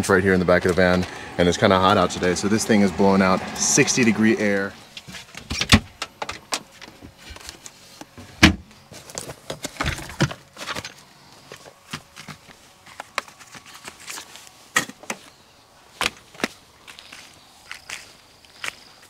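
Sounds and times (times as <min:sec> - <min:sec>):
knocks and clicks of handling: 0:05.0 - 0:10.9.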